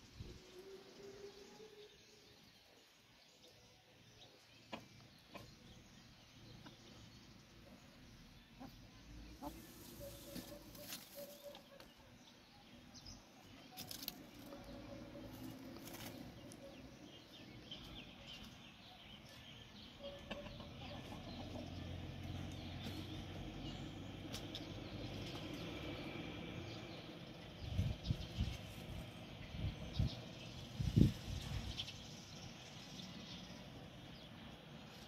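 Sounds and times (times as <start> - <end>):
hens and rooster clucking: 4.6 - 5.9, 8.5 - 11.9, 19.9 - 23.5.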